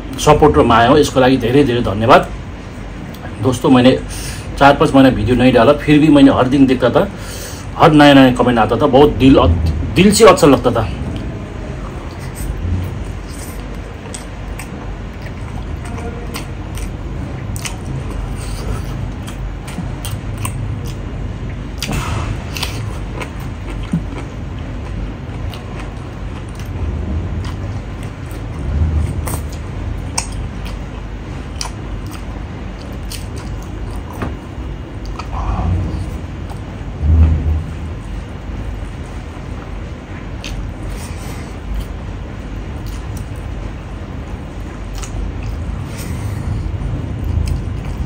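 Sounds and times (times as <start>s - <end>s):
person chewing and smacking: 10.7s - 36.8s, 38.0s - 48.0s.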